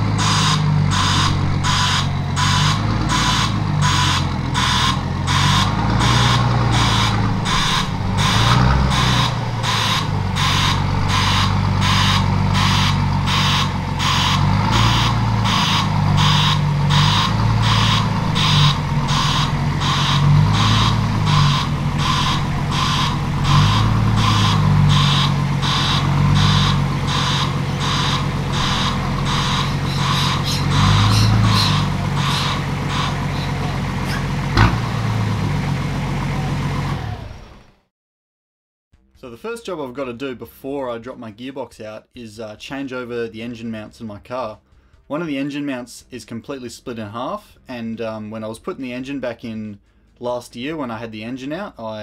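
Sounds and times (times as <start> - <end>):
diesel engine running at low revs: 0.0 - 37.9
reverse beeper: 0.2 - 34.2.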